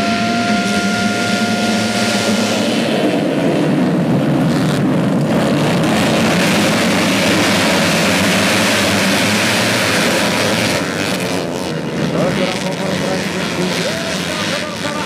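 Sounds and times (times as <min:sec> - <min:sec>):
racing motorbike engines at full throttle: 0:00.0 - 0:15.0.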